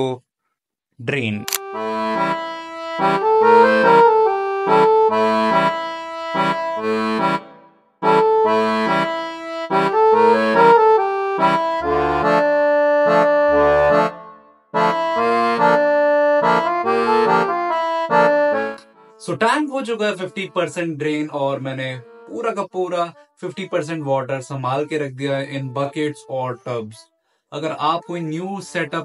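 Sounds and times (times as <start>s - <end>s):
lively music with bass: 1.6s - 19.0s.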